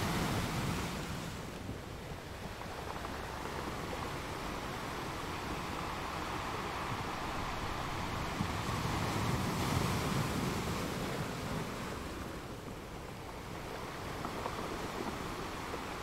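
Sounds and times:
steady rushing noise: 0.0s - 16.0s.

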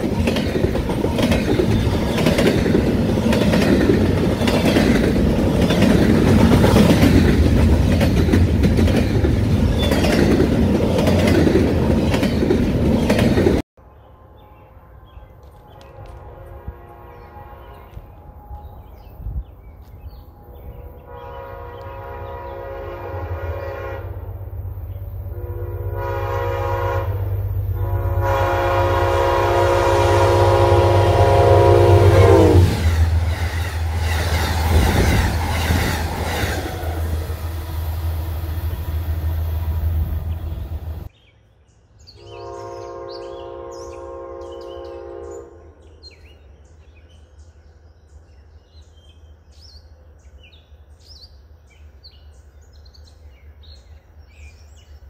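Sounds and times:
train rumbling with rail clatter: 0.0s - 13.7s, 17.6s - 41.1s
faint train horn: 13.8s - 19.3s, 20.1s - 24.6s, 25.2s - 33.1s, 42.1s - 46.2s
locomotive horn blasts: 14.7s - 18.6s, 20.4s - 24.3s, 25.3s - 32.8s, 42.2s - 45.8s
birds chirping: 32.9s - 55.0s.

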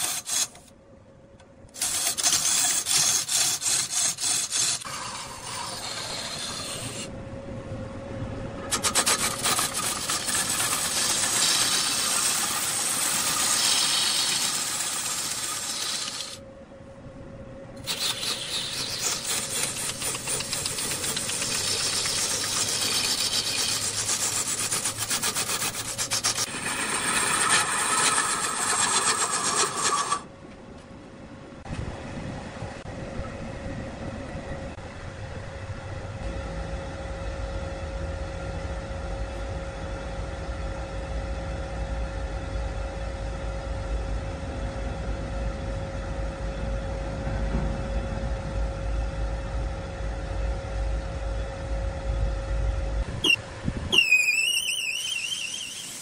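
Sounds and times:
lathe tool rasping into wood: 0.0s - 0.6s, 1.8s - 7.1s, 8.7s - 16.4s, 17.8s - 30.2s
machine hum: 0.0s - 56.0s.

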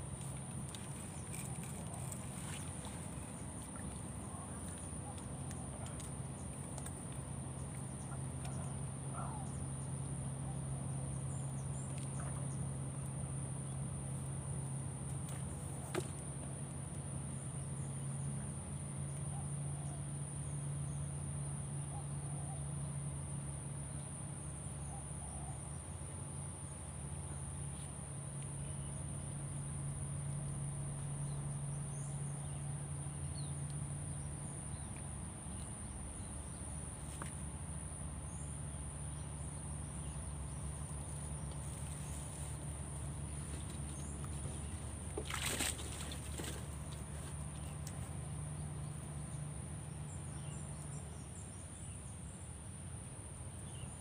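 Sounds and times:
insects droning: 0.0s - 54.0s
low steady hum: 0.0s - 54.0s.

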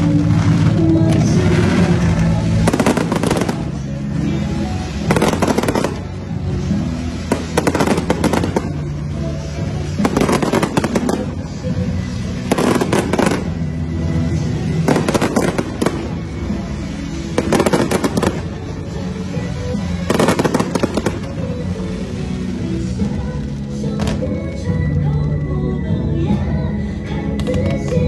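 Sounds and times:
fireworks crackling: 0.0s - 28.0s
music with sustained notes: 0.0s - 28.0s.

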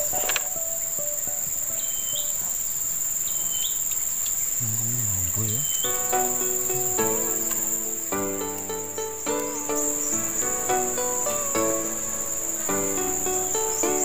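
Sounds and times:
insect chorus drone: 0.0s - 14.0s
music with held notes: 5.8s - 14.0s.

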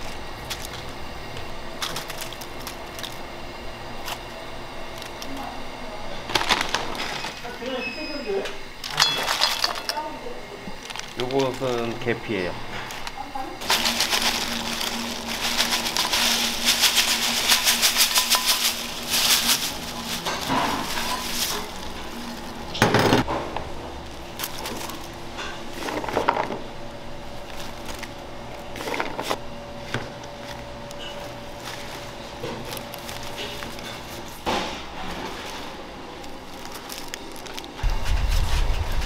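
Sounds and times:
pots and utensils clattering: 8.8s - 10.1s, 13.6s - 23.4s.

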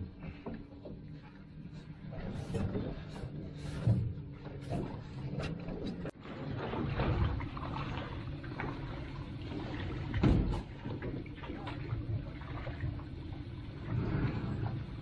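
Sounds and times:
water lapping against a boat: 0.0s - 15.0s
knock on boat: 10.1s - 10.7s.

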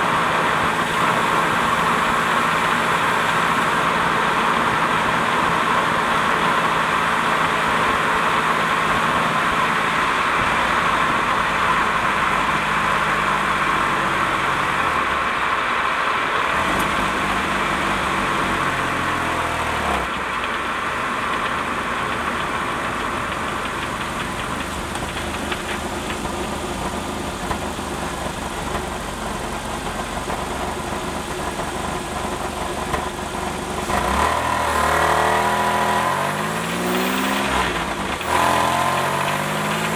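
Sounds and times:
car engine running: 0.0s - 39.9s
steady metallic rattle: 20.0s - 33.9s.

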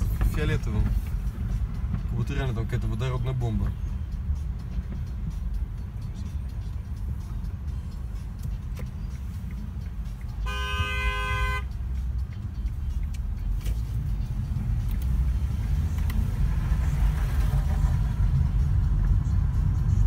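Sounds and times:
car cabin road rumble: 0.0s - 20.0s
car horn: 10.4s - 11.8s.

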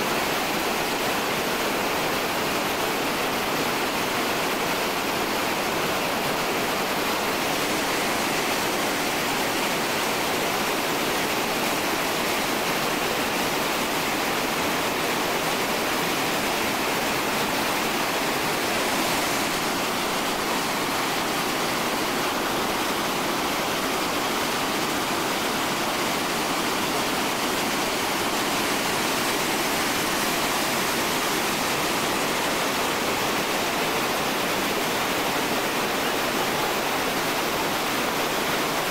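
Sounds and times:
rushing whitewater: 0.0s - 38.9s.

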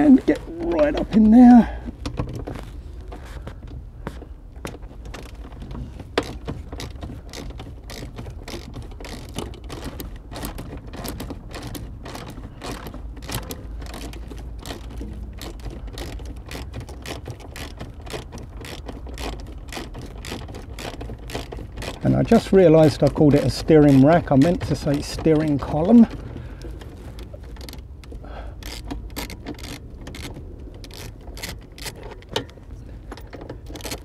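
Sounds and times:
ratchet wrench clicking: 6.2s - 26.8s, 27.5s - 32.5s, 33.3s - 34.0s.

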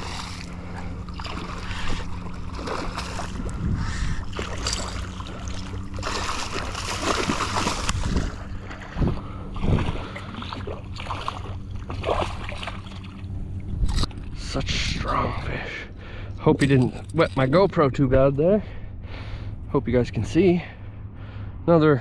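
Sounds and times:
fish splashing in shallow water: 0.0s - 14.3s
wind buffeting microphone: 2.8s - 4.4s, 7.2s - 10.2s.

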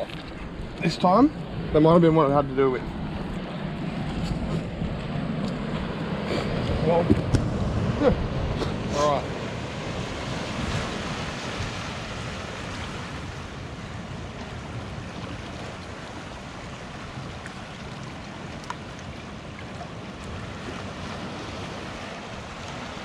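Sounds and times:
wind buffeting microphone: 0.0s - 17.7s
waves on rocky shore: 0.0s - 23.0s.

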